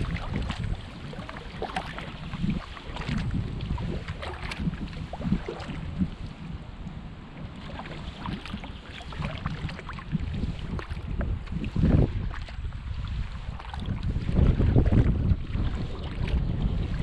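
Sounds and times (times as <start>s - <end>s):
water dripping off paddle: 0.0s - 5.8s, 7.6s - 10.1s
paddle blades splashing: 0.0s - 17.0s
wind rumble on microphone: 0.0s - 17.0s.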